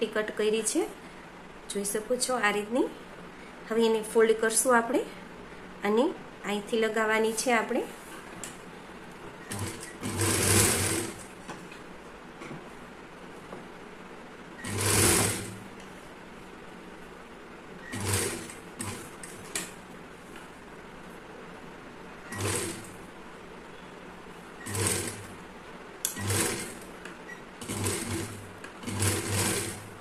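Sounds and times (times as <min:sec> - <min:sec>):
sewing machine stitching: 0:09.4 - 0:11.3, 0:14.6 - 0:15.7, 0:17.8 - 0:19.8, 0:22.3 - 0:23.0, 0:24.6 - 0:25.4, 0:26.0 - 0:30.0.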